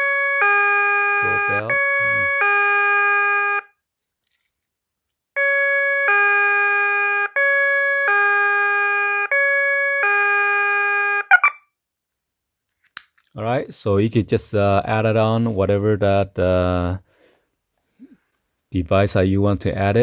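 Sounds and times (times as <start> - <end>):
plastic clatter: 4.0 - 4.7.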